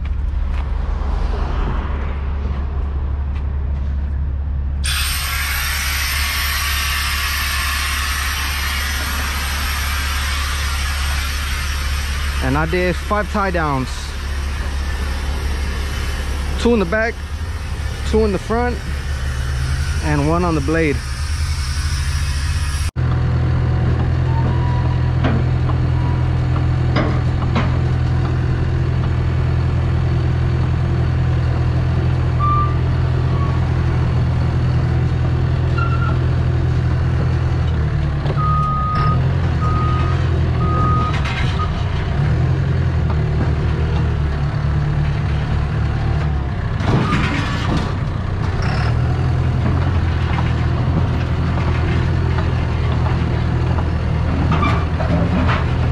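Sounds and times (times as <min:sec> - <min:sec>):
bulldozer diesel engine running: 0:02.0 - 0:55.9
backup alarm beeps: 0:38.4 - 0:41.2.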